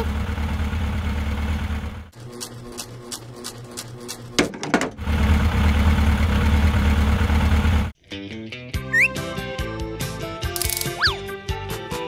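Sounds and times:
toy car engine idle hum: 0:00.0 - 0:04.3.

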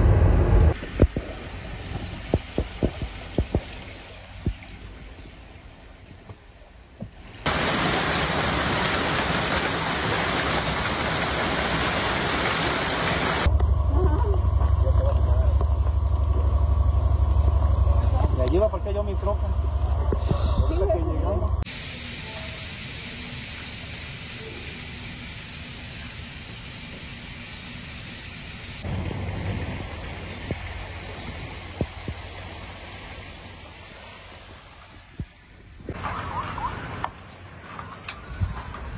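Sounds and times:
low pulsing hum: 0:00.0 - 0:05.2, 0:13.5 - 0:21.7
heavy rain hissing: 0:00.7 - 0:13.5, 0:21.7 - 0:38.9
running runoff water: 0:00.7 - 0:13.5, 0:21.7 - 0:38.9
heavy hail clattering: 0:07.5 - 0:13.5.

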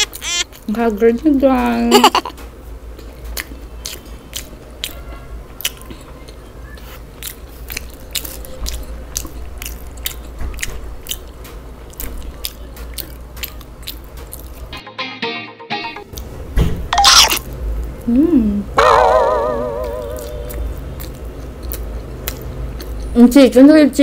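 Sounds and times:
crunchy chewing: 0:03.3 - 0:14.7, 0:17.0 - 0:18.0, 0:19.8 - 0:23.2.

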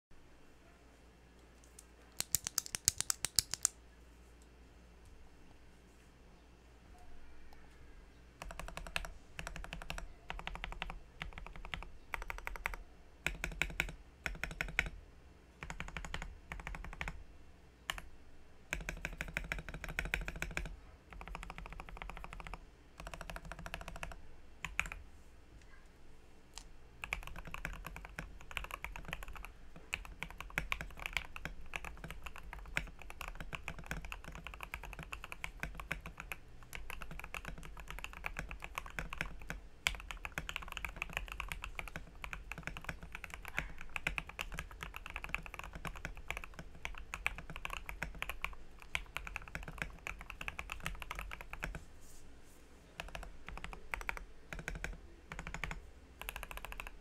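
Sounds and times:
mechanical keyboard typing: 0:02.2 - 0:03.8, 0:08.4 - 0:15.0, 0:15.6 - 0:17.2, 0:17.9 - 0:18.1, 0:18.7 - 0:25.0, 0:27.0 - 0:51.8, 0:53.0 - 0:57.0.

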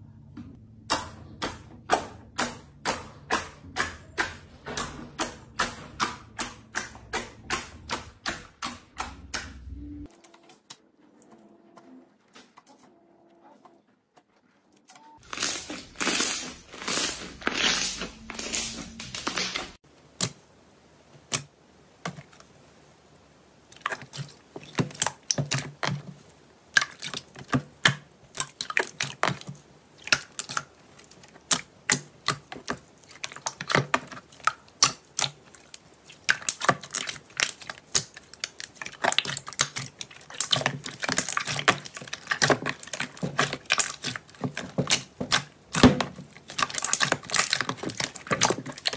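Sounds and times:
slime squelching: 0:15.2 - 0:19.8, 0:23.7 - 0:48.9.

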